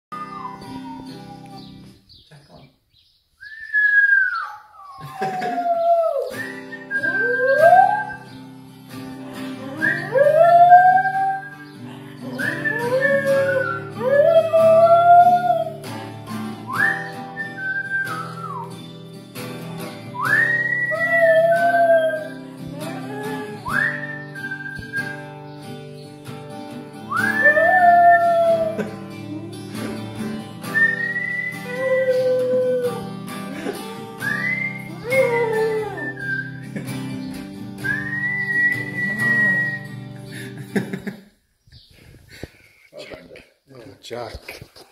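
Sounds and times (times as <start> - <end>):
dog howling: 0.2 - 1.8, 4.3 - 8.3, 9.5 - 11.6, 12.3 - 15.9, 20.6 - 24.1, 27.2 - 30.1, 31.0 - 36.5
strummed acoustic guitar: 7.8 - 10.4, 11.4 - 41.0
strummed guitar chords: 28.5 - 31.2.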